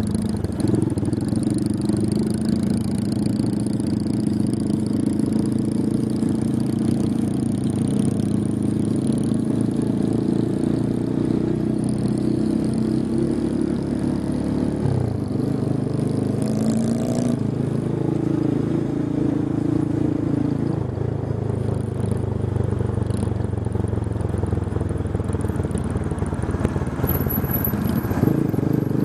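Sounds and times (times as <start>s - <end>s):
motorcycle engine running: 0.0s - 29.0s.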